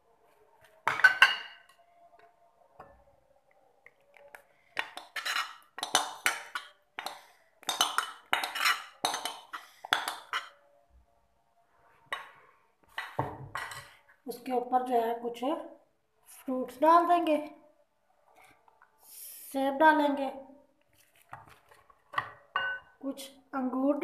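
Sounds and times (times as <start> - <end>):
spoon clinking and scraping bowl: 4.3 - 10.6.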